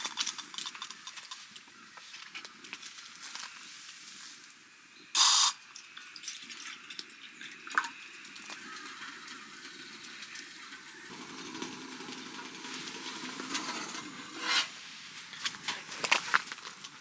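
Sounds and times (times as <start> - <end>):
metal mug scraping on stove: 11.1 - 14.8.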